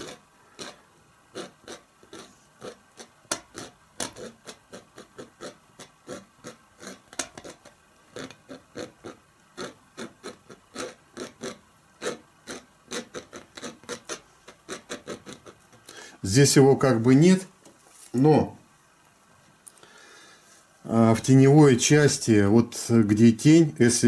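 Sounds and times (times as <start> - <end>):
palette knife scratching canvas: 0.0 - 15.8.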